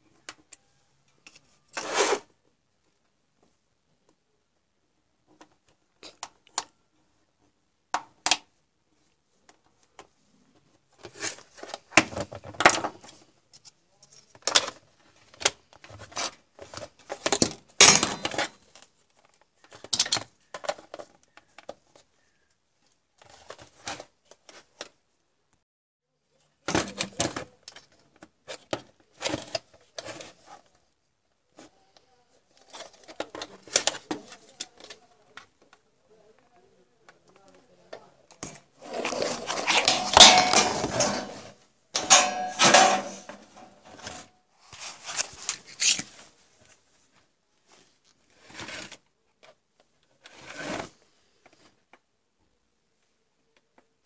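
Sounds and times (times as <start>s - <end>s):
plastic clicks and scraping: 32.5s - 35.8s.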